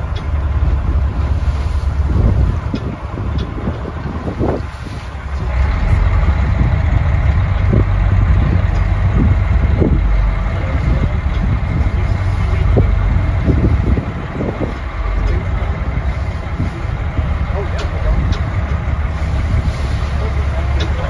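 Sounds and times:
boat engine rumbling: 0:00.0 - 0:21.0
wind buffeting microphone: 0:00.0 - 0:21.0.

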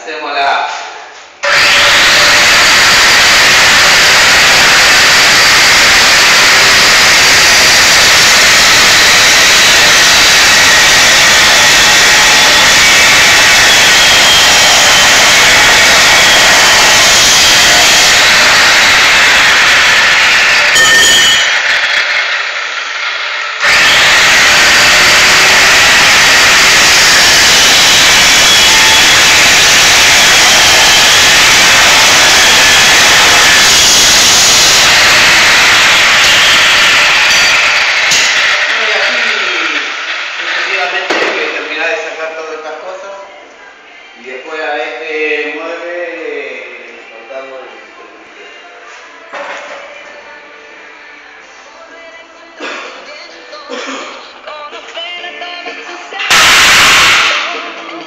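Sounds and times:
grinder disc cutting steel: 0:01.4 - 0:41.9, 0:56.1 - 0:58.0
angle grinder running: 0:01.4 - 0:42.0, 0:56.2 - 0:57.8.

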